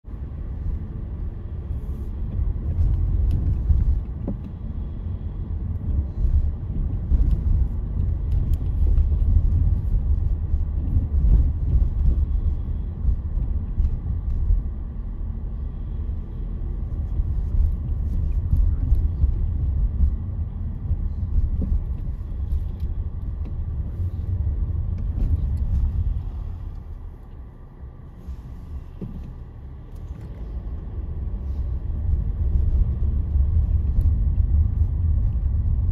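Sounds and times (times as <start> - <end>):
car road noise rumble: 0.0 - 35.9.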